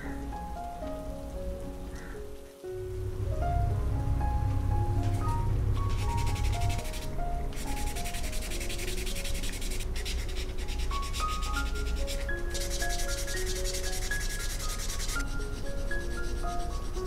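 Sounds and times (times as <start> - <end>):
soft melodic background music: 0.0 - 17.0
sanding sponge rubbing plastic: 5.9 - 17.0.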